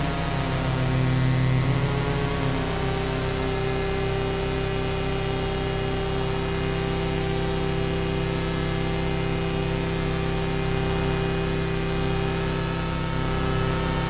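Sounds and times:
synthesizer buzzing drone: 0.0s - 14.0s.

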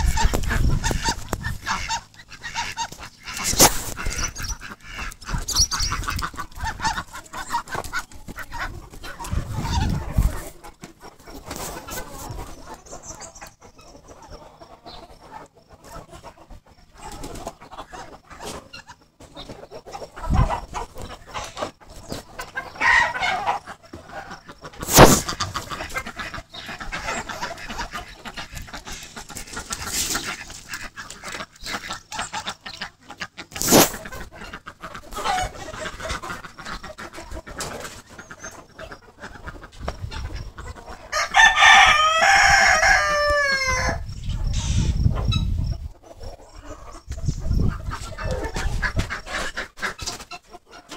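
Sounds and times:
chickens clucking: 0.0s - 50.9s
rooster crowing: 41.1s - 44.0s.

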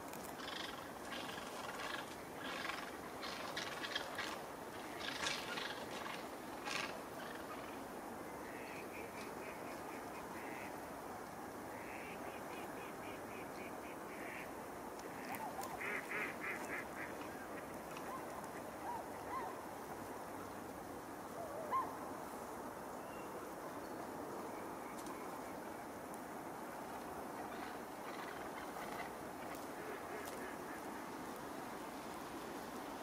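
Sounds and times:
steady background noise: 0.0s - 33.0s
ducks and swans calling: 15.2s - 19.6s, 27.7s - 31.0s.

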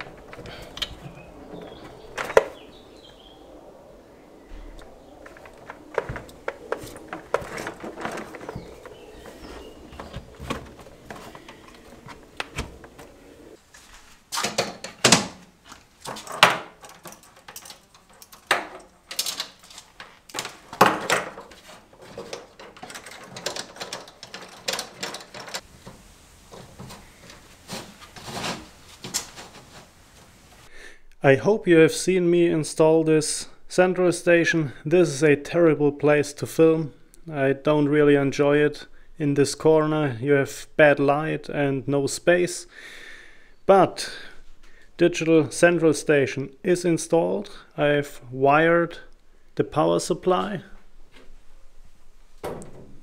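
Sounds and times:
cables rustling: 0.0s - 30.7s
handling clicks and knocks: 5.2s - 13.6s, 14.4s - 30.7s.

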